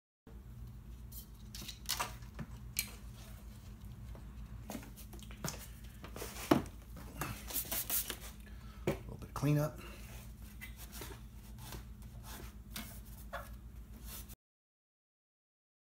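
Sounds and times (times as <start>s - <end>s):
steady low hum: 0.3s - 14.4s
spray bottle squirts: 7.5s - 8.3s.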